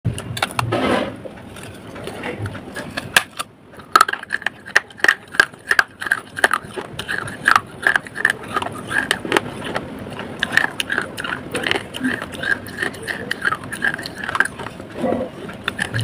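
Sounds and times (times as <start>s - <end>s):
clay being crunched by teeth: 2.8s - 14.8s.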